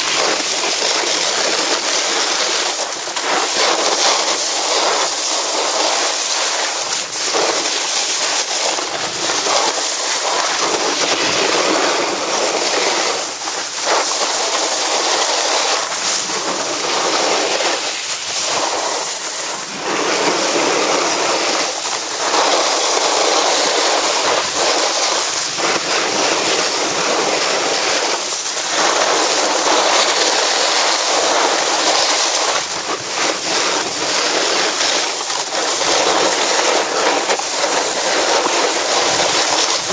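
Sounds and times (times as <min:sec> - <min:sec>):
snowboard scraping over snow: 0:00.0 - 0:39.9.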